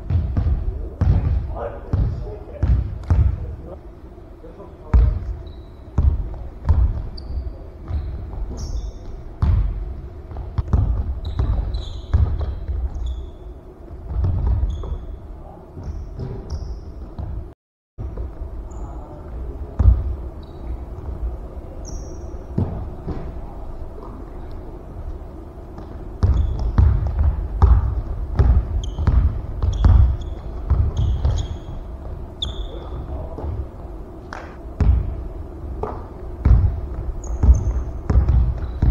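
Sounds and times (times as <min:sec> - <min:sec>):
basketball bouncing on wooden floor: 0:00.0 - 0:03.4, 0:06.0 - 0:07.1, 0:09.4 - 0:13.0, 0:14.1 - 0:15.0, 0:25.8 - 0:31.6, 0:35.8 - 0:38.9
sneaker squeaks: 0:05.0 - 0:09.7, 0:10.3 - 0:17.4, 0:18.1 - 0:19.1, 0:20.3 - 0:21.0, 0:21.8 - 0:23.3, 0:25.8 - 0:33.6, 0:35.8 - 0:38.9.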